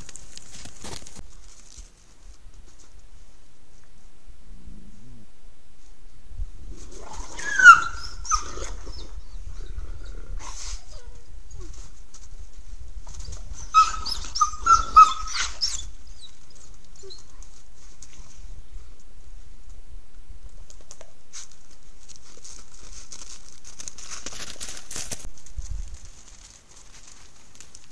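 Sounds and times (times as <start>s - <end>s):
wolf whining: 6.8s - 11.9s, 13.1s - 17.5s.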